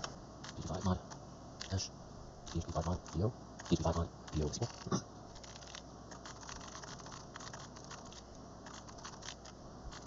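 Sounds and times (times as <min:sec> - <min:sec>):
keyboard typing clicks: 0:05.4 - 0:10.0.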